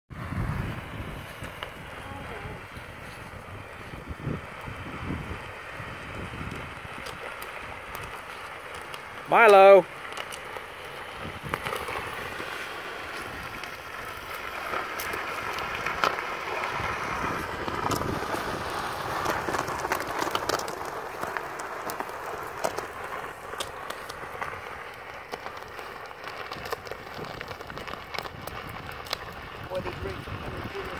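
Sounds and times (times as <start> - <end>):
electric scooter motor whine: 0.1 - 30.9
plastic basket scraping pavement: 0.2 - 30.9
scattered clicks: 23.5 - 30.9.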